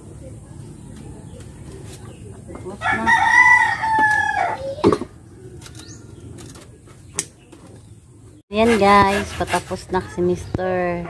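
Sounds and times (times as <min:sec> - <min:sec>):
rooster crowing: 0:02.8 - 0:04.7.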